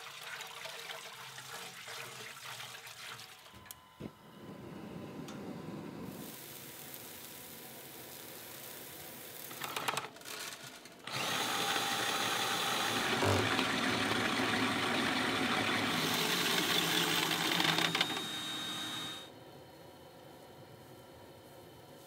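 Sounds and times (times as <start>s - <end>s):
drill running grain mill: 11.1s - 19.3s.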